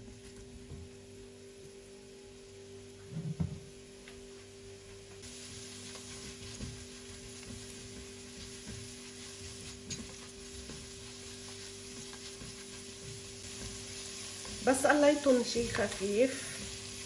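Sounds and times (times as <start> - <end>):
onions frying in oil: 5.2 - 17.0
spatula scraping and tapping pot: 5.8 - 14.8.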